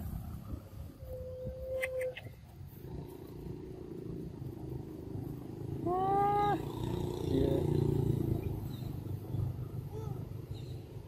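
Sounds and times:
macaque coo call: 0:00.9 - 0:03.0.

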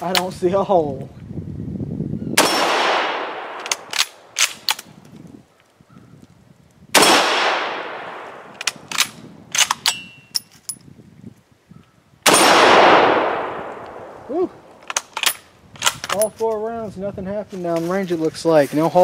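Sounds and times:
rifle shot echoing: 0:02.4 - 0:04.7, 0:06.9 - 0:09.2, 0:12.2 - 0:14.3
rifle bolt clicks: 0:03.4 - 0:04.9, 0:08.3 - 0:10.8, 0:13.2 - 0:14.1, 0:14.8 - 0:16.3.

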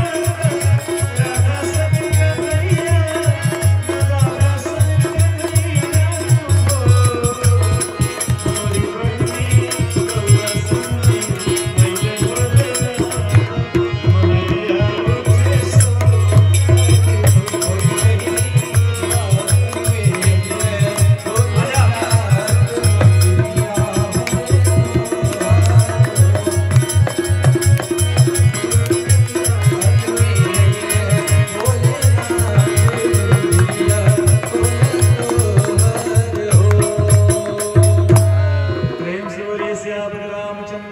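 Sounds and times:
hand drum rhythm: 0:00.0 - 0:38.5
jingling percussion: 0:00.0 - 0:39.2
harmonium melody: 0:00.0 - 0:40.9.

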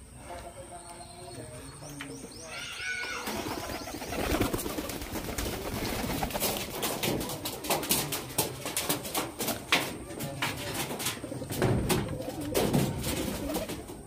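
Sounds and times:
doves cooing: 0:02.4 - 0:14.0.

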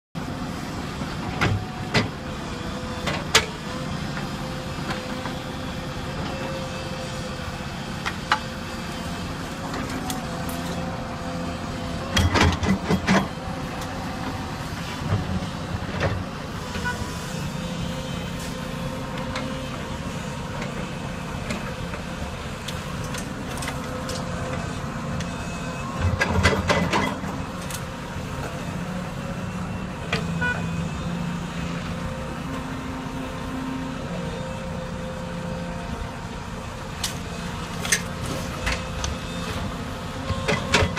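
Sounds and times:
diesel engines running: 0:00.2 - 0:40.9.

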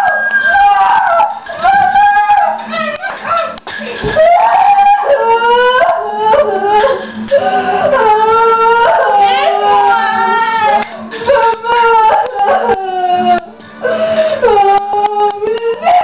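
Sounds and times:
woman wailing like a baby: 0:00.0 - 0:03.6, 0:04.2 - 0:16.0.

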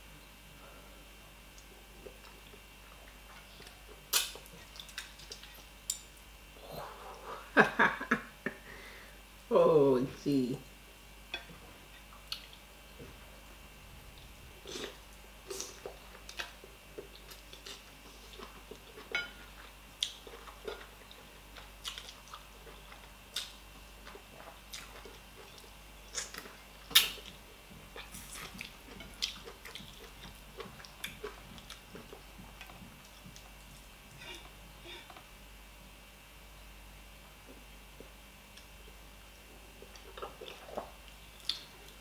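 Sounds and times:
chewing and lip smacks: 0:14.1 - 0:34.5, 0:39.8 - 0:42.0.

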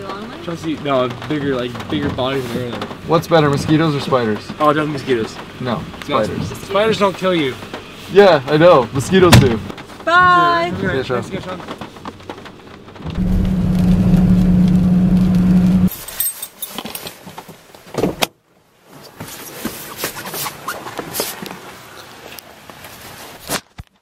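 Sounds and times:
mechanical whirr inside car: 0:13.0 - 0:15.9
keys jangling: 0:15.9 - 0:17.0.

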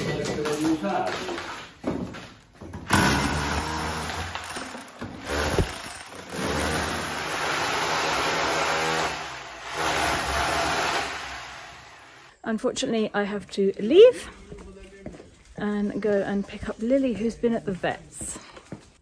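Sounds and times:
rotary hammer chiselling wall: 0:02.8 - 0:12.2.

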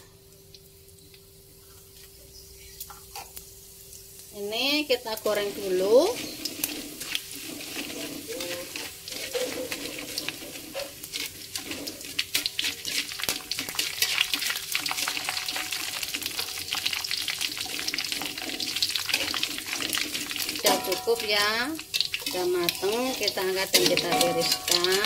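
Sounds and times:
spices sizzling in hot oil: 0:00.0 - 0:25.0
metal spatula in wok: 0:05.1 - 0:25.0.

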